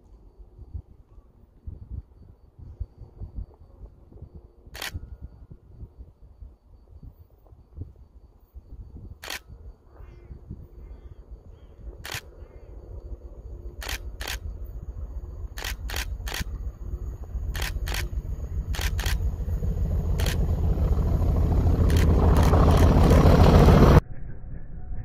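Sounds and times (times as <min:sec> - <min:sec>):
camera shutter firing: 0:04.8 - 0:05.0, 0:09.2 - 0:09.4, 0:12.0 - 0:12.3, 0:13.8 - 0:14.4, 0:15.6 - 0:16.5, 0:17.5 - 0:18.1, 0:18.7 - 0:19.2, 0:20.2 - 0:20.4, 0:21.9 - 0:22.9
diesel locomotive rumble: 0:07.3 - 0:24.0.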